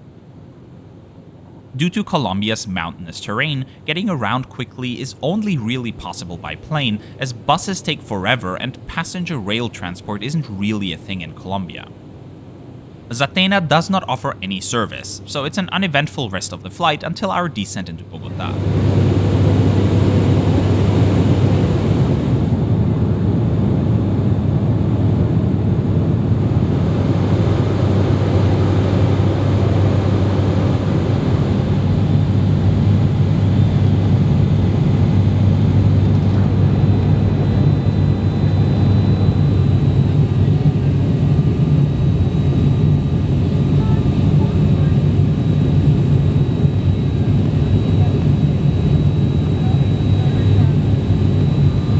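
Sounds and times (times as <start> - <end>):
deep propeller hum: 18.0 - 51.9.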